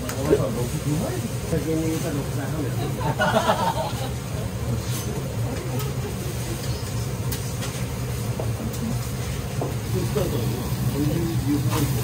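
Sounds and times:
faint sizzle: 0.0s - 12.0s
low hum of kitchen ventilation: 0.0s - 12.0s.

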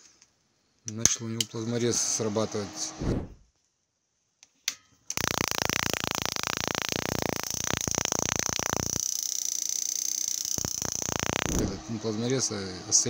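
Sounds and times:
spark gap crackling: 5.1s - 12.0s
high-pitched whine: 5.2s - 13.0s.

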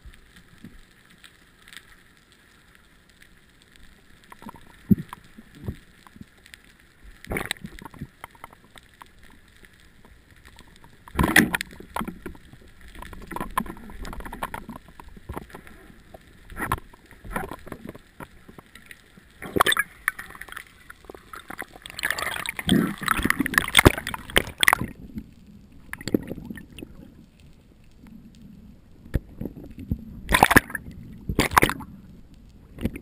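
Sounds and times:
water rushing and bubbling: 3.9s - 33.0s
faint ticking underwater: 7.2s - 32.1s.

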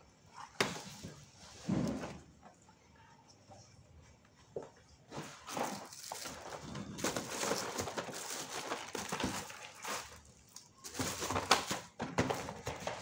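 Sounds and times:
rustling and crinkling packets: 5.2s - 13.0s.

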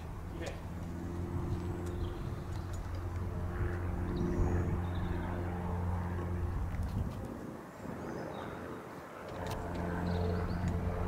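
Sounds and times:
engine drone: 0.0s - 11.0s.

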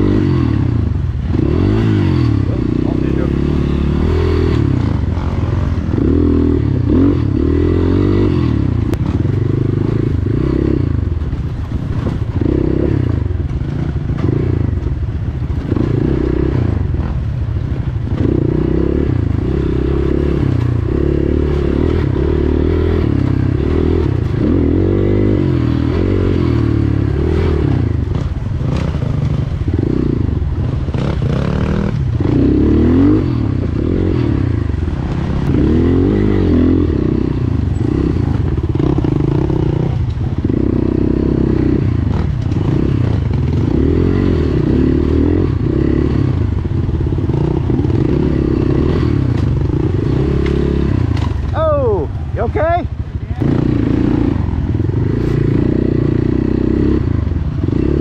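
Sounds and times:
motorcycle engine revving: 0.0s - 58.0s
rattles and knocks from bike: 11.1s - 18.5s, 28.0s - 32.3s, 42.0s - 43.8s, 49.2s - 51.6s.

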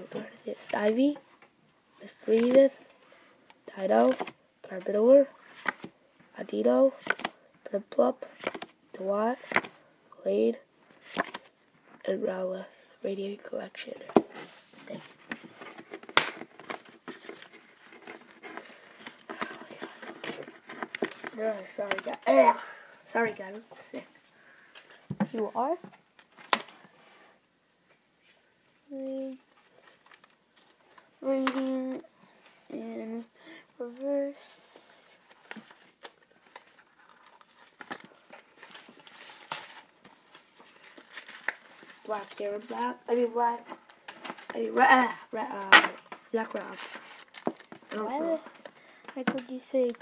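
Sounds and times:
cards and wrappers crinkling: 14.8s - 22.2s, 35.2s - 50.0s.

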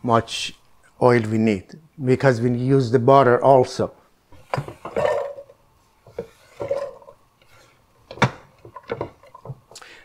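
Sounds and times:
wood knocking on pot: 6.0s - 7.1s, 8.1s - 9.7s.

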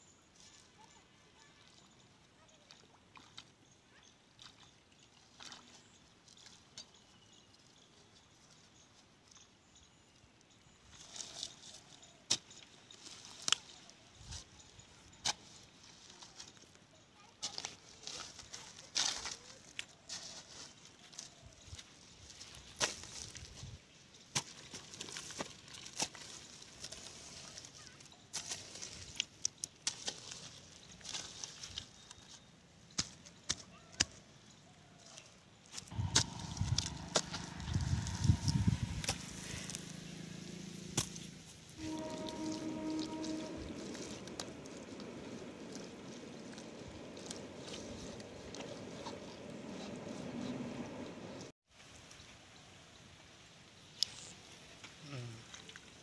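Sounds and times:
dry leaves crackling: 15.4s - 23.8s, 24.4s - 32.4s, 34.9s - 51.5s.

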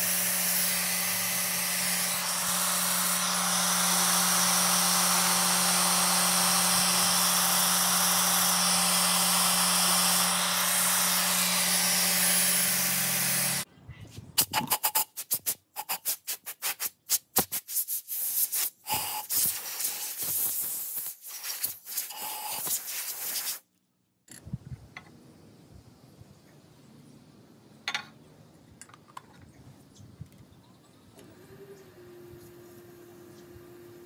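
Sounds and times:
compressed air blow gun: 0.0s - 13.7s, 14.4s - 23.6s.

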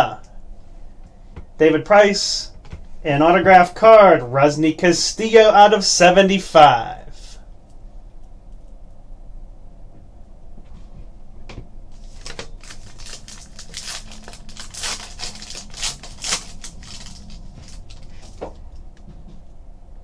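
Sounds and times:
foil pack crackling: 12.0s - 18.8s.

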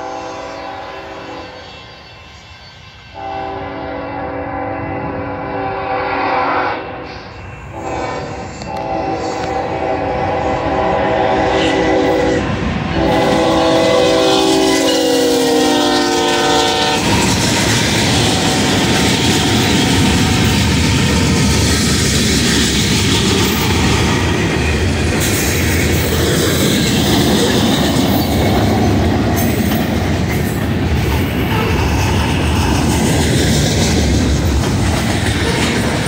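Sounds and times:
locomotive air horn chord: 0.0s - 1.6s, 3.1s - 17.2s.

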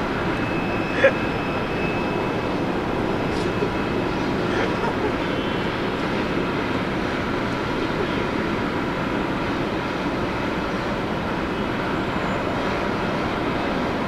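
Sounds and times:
faint high whine: 0.0s - 6.5s
jet engines rushing: 0.0s - 14.0s.

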